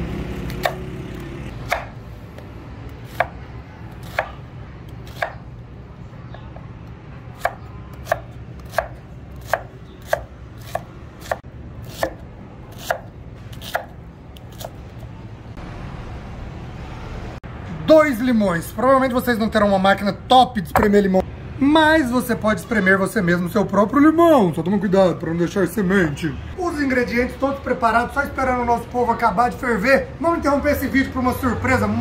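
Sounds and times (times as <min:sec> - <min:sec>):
knife chopping on wooden board: 0:00.5 - 0:00.9, 0:01.6 - 0:02.0, 0:03.1 - 0:03.4, 0:04.0 - 0:04.4, 0:05.0 - 0:05.4, 0:07.4 - 0:14.8.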